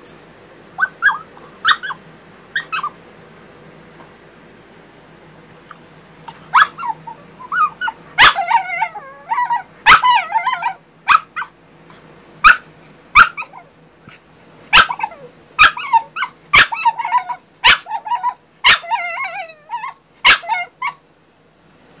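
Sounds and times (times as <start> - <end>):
dog barking: 0.8 - 2.0, 6.5 - 8.6, 9.8 - 11.5, 12.4 - 13.6, 14.7 - 19.0, 20.2 - 21.0
dog whining: 0.8 - 3.0, 6.3 - 11.5, 13.2 - 21.0.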